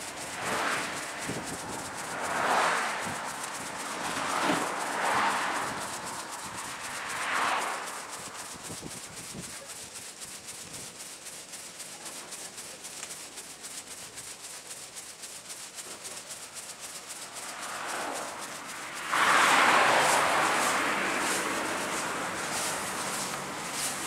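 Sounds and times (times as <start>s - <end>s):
footsteps on paved path: 0.0s - 9.0s, 17.4s - 24.0s
rush of noise: 0.0s - 11.5s, 15.9s - 24.0s.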